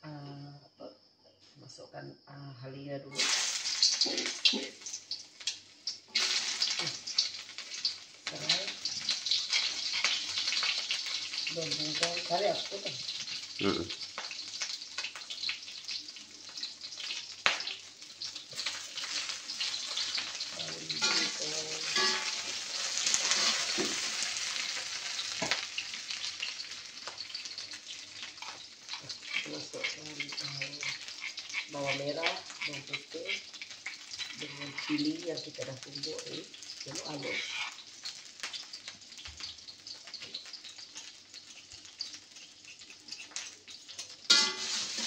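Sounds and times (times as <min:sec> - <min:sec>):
ginger sizzling in hot oil: 0:03.1 - 0:45.0
sharp scrapes in pan: 0:21.0 - 0:24.4, 0:37.2 - 0:37.8, 0:44.3 - 0:45.0.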